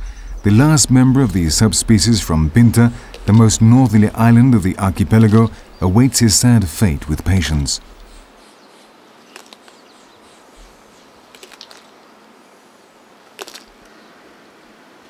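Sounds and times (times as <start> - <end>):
faint steady hiss: 0.0 - 15.0
tortoise crunching cactus: 9.3 - 9.9, 11.2 - 12.0, 13.3 - 13.9.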